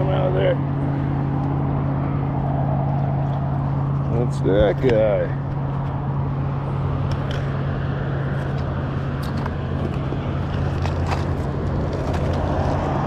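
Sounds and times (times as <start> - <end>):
low motor-like hum: 0.0 - 13.0
outdoor noise: 0.0 - 13.0.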